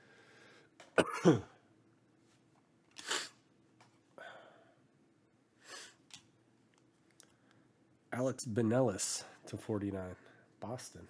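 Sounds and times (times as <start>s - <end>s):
man breathing sharply through nose: 0.0s - 0.7s, 5.6s - 6.0s.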